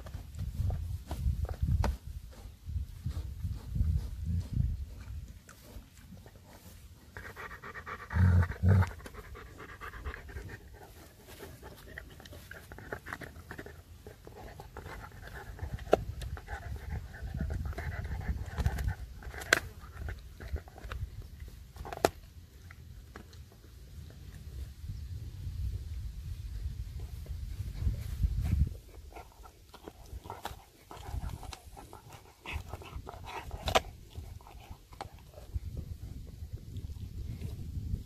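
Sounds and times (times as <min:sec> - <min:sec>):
dog panting: 0:07.1 - 0:20.8, 0:28.9 - 0:35.6
dog gnawing a bone: 0:07.2 - 0:24.2, 0:28.9 - 0:37.5.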